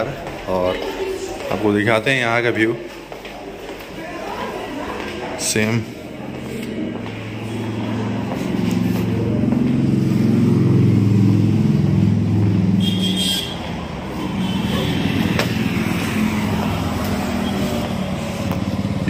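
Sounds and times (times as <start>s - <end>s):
vehicle engine passing by: 4.3s - 19.0s.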